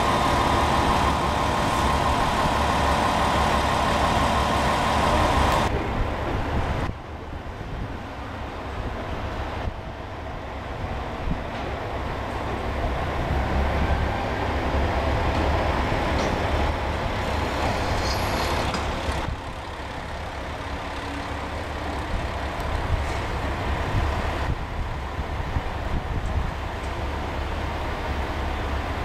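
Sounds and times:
diesel railcar engine rumbling: 0.0 - 29.0
brief high squeal: 17.5 - 18.6.

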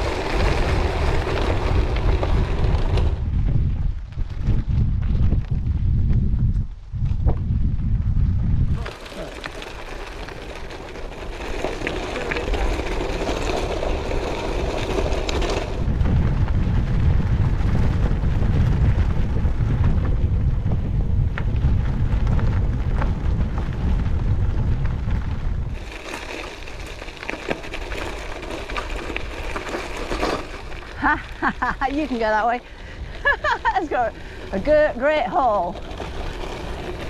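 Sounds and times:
bike tyres crunching over trail: 0.0 - 37.0
wind buffeting microphone: 0.0 - 37.0
small clicks from ground: 8.7 - 16.6, 21.3 - 34.7.

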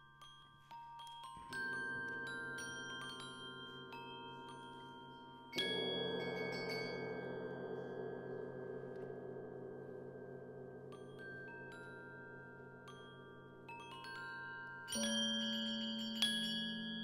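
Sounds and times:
bell-like mallet notes: 11.0 - 17.0.

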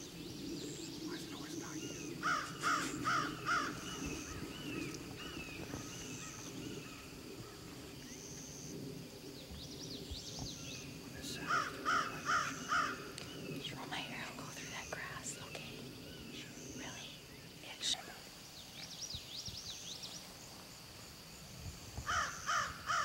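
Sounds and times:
crow cawing: 2.2 - 4.5, 11.5 - 13.1, 22.0 - 23.0.

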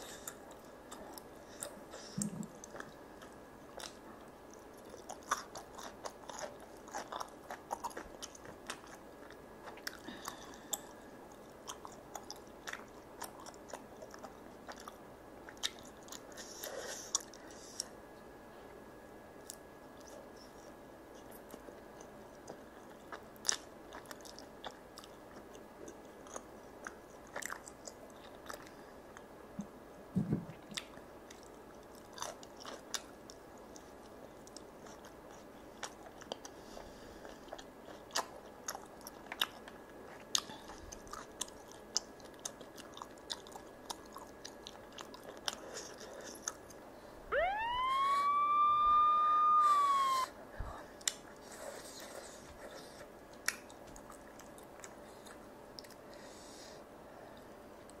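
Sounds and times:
wet chewing: 0.2 - 18.0, 30.6 - 49.5
long pitched tone: 47.3 - 50.3.

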